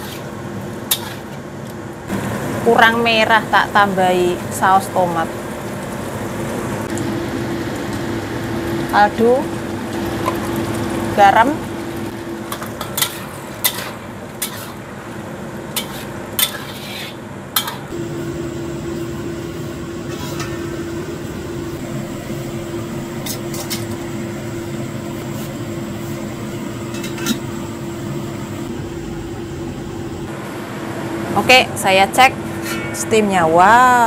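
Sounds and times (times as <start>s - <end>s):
metal spatula scraping a wok: 0.0s - 1.4s, 12.8s - 14.8s, 15.7s - 17.9s, 20.0s - 20.7s, 32.5s - 33.3s
water boiling: 0.0s - 31.6s.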